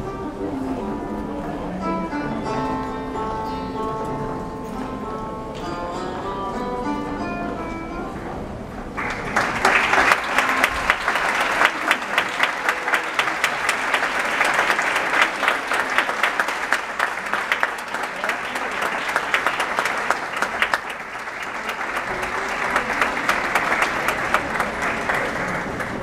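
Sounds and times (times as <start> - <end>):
audience applauding: 9.0 - 26.0.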